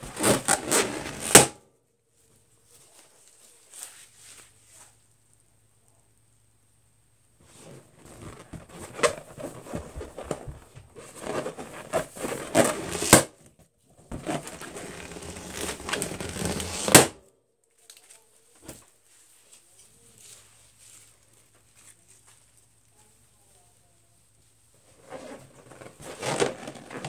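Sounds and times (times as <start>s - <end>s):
balloon popping: 0.0s - 1.6s, 11.2s - 13.4s, 14.1s - 17.2s
balloons squeaking and crinkling: 0.0s - 1.6s, 7.4s - 13.4s, 14.0s - 17.2s, 24.8s - 27.0s.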